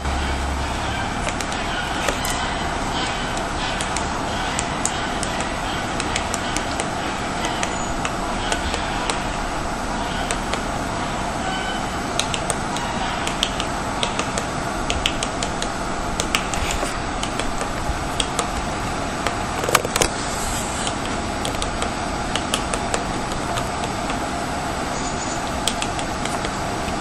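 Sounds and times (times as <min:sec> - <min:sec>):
steady hiss: 0:00.0 - 0:27.0
woodpecker tapping on bark: 0:01.1 - 0:09.3, 0:12.2 - 0:20.1, 0:20.8 - 0:24.2, 0:25.1 - 0:26.6.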